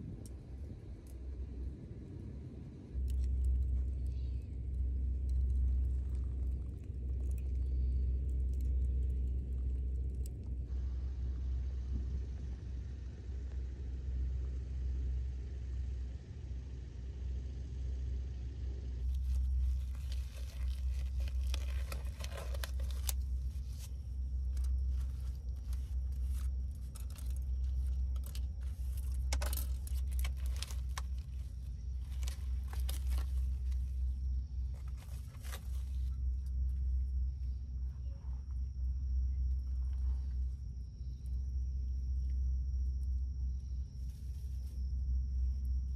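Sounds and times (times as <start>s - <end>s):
steady low rumble: 0.0s - 45.9s
rubber gloves rustling: 19.0s - 36.2s.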